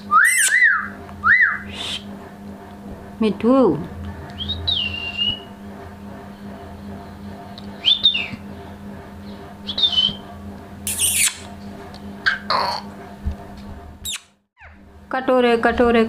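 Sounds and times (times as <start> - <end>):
parakeet high-pitched calls: 0.1 - 1.0, 10.9 - 11.5, 12.2 - 12.9, 14.0 - 14.8
parakeet harsh screech: 0.2 - 0.8, 10.9 - 11.5.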